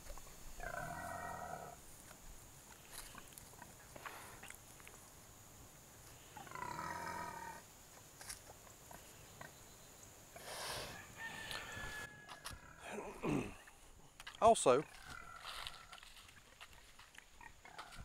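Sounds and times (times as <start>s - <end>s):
pig growling: 0.6s - 1.8s, 6.4s - 7.6s, 12.5s - 13.8s, 14.8s - 16.1s
pig snorting: 14.8s - 18.0s.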